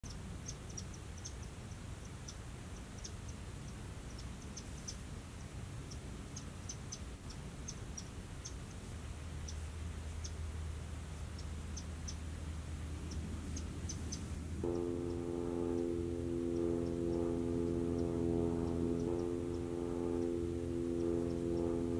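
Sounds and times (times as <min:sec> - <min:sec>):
low background rumble: 0:00.0 - 0:21.9
background music with held tones: 0:14.6 - 0:21.9.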